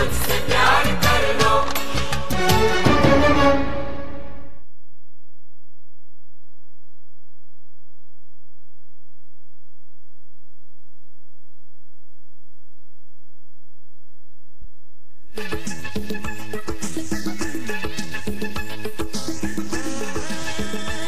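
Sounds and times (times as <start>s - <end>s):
music: 0.0s - 4.6s, 15.3s - 21.0s.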